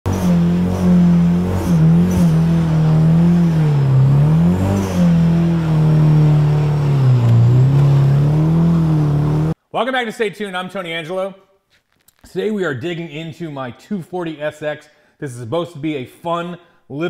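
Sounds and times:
car engine revving high: 0.0s - 9.6s.

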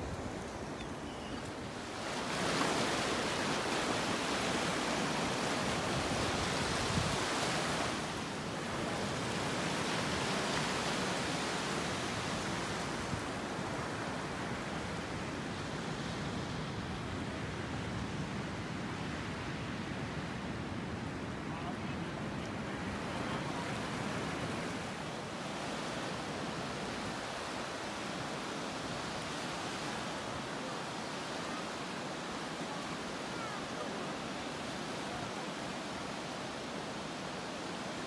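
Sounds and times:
surf washing around rocks: 1.4s - 15.8s.

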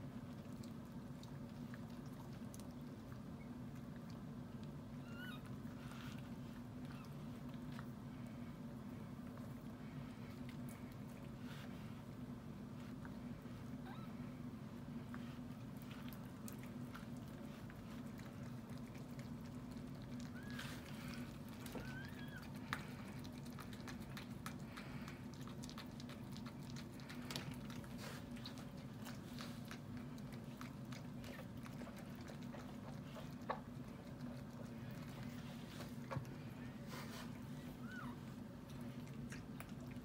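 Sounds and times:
steady low hum: 0.0s - 40.0s
puppy squeaks: 5.0s - 5.5s
dog licking wetly: 16.0s - 36.4s.

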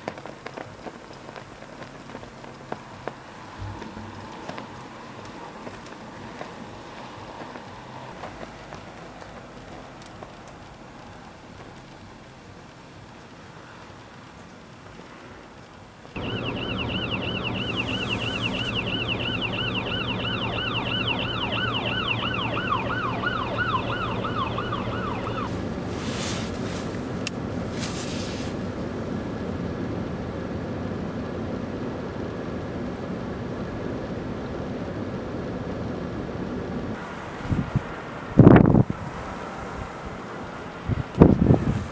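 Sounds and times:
engine hum: 0.0s - 13.8s, 16.1s - 41.9s
low traffic hum: 0.0s - 41.9s
emergency siren yelping: 16.2s - 25.8s.

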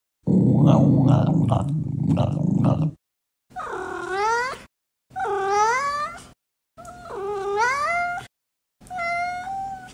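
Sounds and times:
cat meowing: 8.9s - 9.9s.

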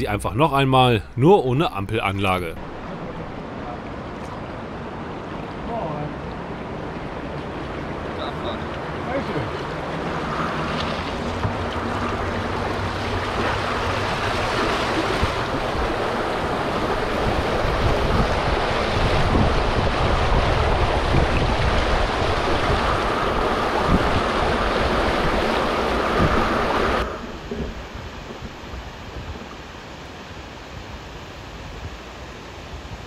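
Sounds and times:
rushing churning water: 0.0s - 33.0s
wind buffeting microphone: 9.6s - 29.6s.

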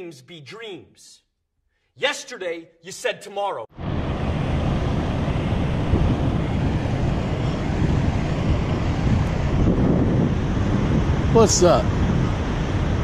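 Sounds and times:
wind buffeting microphone: 3.8s - 13.0s.

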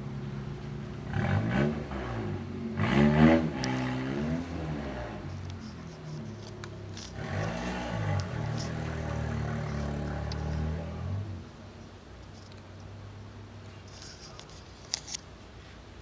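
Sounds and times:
vehicles accelerating past: 0.0s - 11.8s
steady low engine hum: 0.0s - 16.0s.

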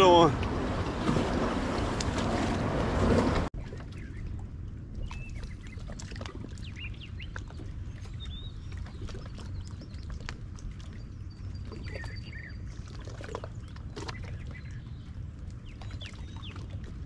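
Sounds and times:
birds chirping: 6.6s - 10.1s.

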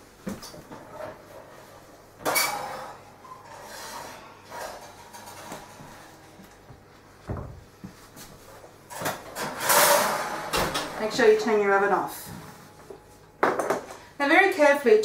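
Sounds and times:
oven door opening with clatter: 2.2s - 6.6s, 8.8s - 11.6s.

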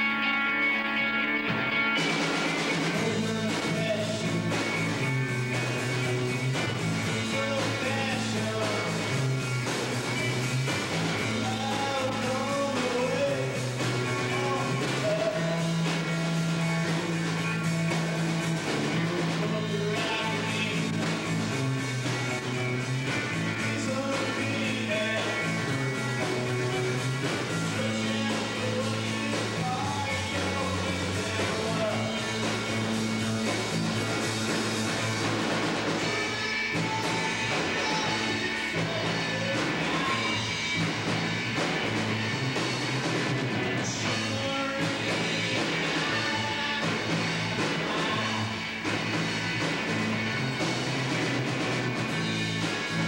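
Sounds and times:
electric guitars: 0.0s - 53.0s
drum kit: 1.3s - 53.0s
man singing: 2.8s - 5.1s, 6.8s - 9.5s, 11.1s - 17.7s, 19.0s - 21.2s, 23.5s - 33.0s, 36.0s - 40.7s, 43.5s - 48.6s.

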